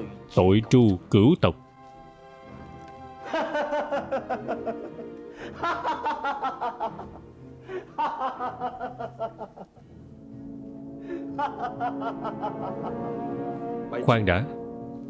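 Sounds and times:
background music sustained chord: 0:00.0 - 0:15.0
man laughing: 0:03.2 - 0:09.6, 0:11.1 - 0:13.0.

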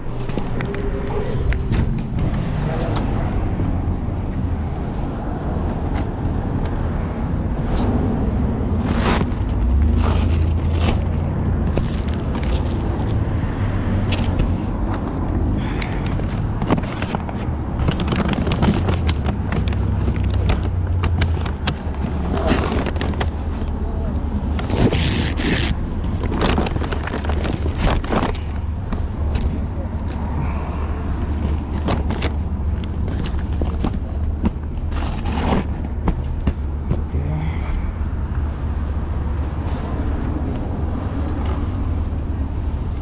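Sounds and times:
rumble of passing vehicles: 0:00.0 - 0:43.0.

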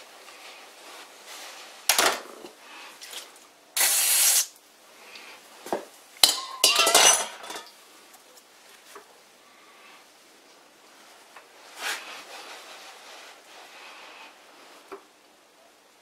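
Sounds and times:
burst of hiss: 0:03.8 - 0:04.6
metal tools clinking and knocking: 0:06.2 - 0:07.8.

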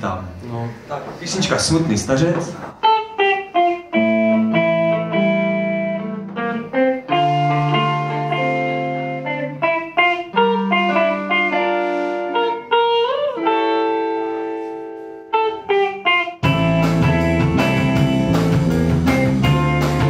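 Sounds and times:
clean electric guitars: 0:02.4 - 0:20.0
low bass notes: 0:16.4 - 0:20.0.

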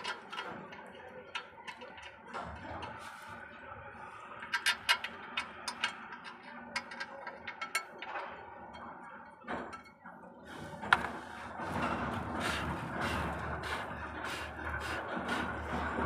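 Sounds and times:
sharp metallic clicks and taps: 0:04.5 - 0:08.2.

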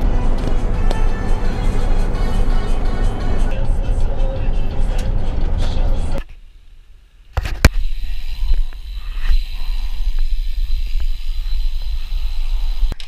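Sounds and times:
tyre hiss on asphalt: 0:07.7 - 0:13.0.

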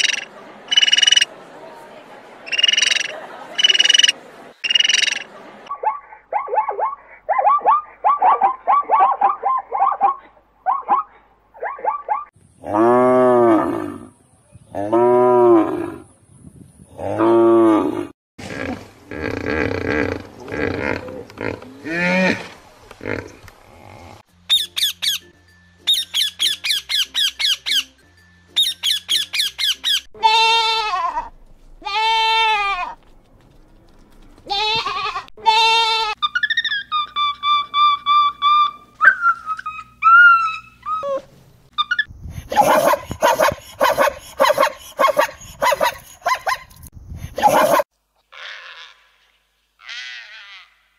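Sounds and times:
high-pitched bird chattering: 0:00.0 - 0:01.3, 0:02.5 - 0:05.3, 0:24.5 - 0:25.2, 0:25.9 - 0:27.9, 0:28.6 - 0:30.1.

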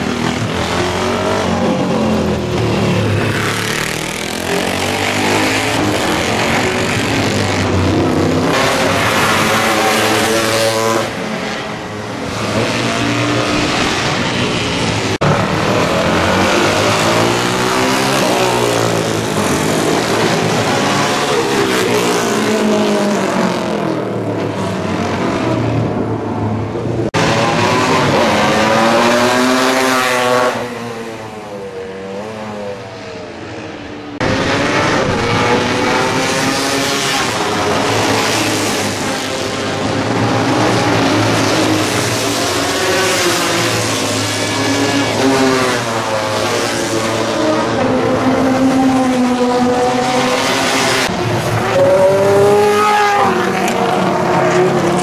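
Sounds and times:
motorcycles passing at speed: 0:00.0 - 0:55.0.

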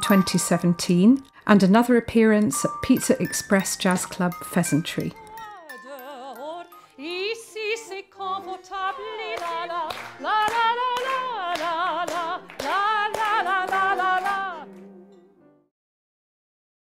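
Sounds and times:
soprano singing with vibrato: 0:00.0 - 0:14.7
sharp hand claps: 0:09.4 - 0:14.9.

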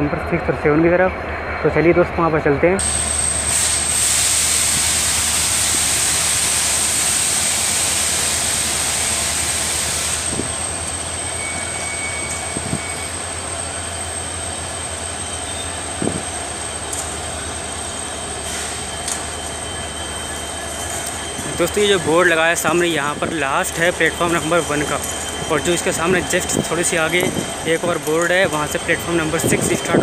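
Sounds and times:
electric locomotive hiss and whine: 0:00.0 - 0:30.0.

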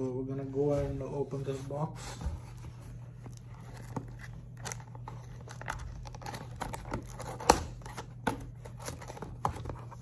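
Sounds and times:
cardboard packaging crinkling and tearing: 0:03.3 - 0:10.0.

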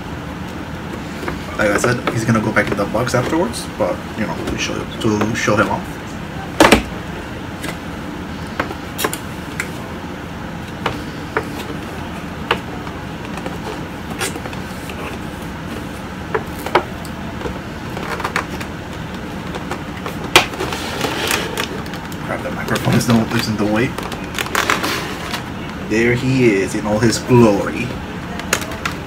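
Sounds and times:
low background hum: 0:00.0 - 0:29.0.

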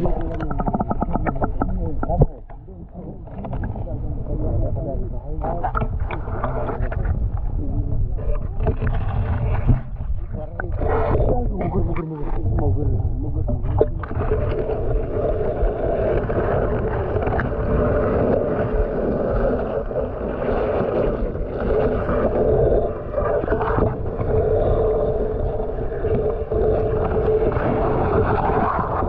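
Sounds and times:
muffled underwater rumble: 0:00.0 - 0:29.0.

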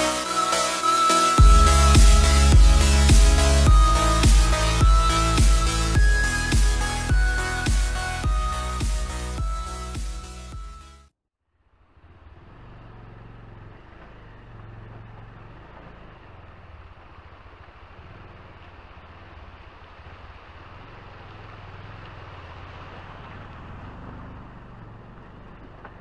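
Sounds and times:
motorcycle engine running low: 0:01.4 - 0:09.6, 0:11.8 - 0:26.0
water rushing and splashing: 0:14.9 - 0:26.0.

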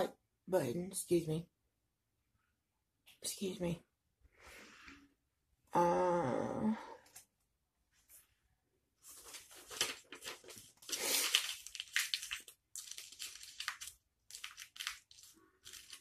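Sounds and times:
food packaging crinkling: 0:09.0 - 0:16.0.

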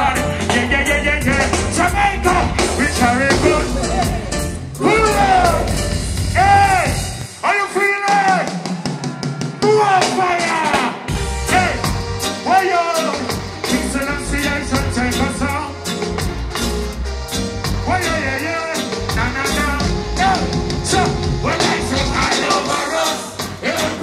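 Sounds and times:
person singing: 0:00.0 - 0:05.8
bass line: 0:00.0 - 0:07.4, 0:11.1 - 0:24.0
drum kit: 0:00.0 - 0:24.0
live reggae band playing: 0:00.0 - 0:24.0.

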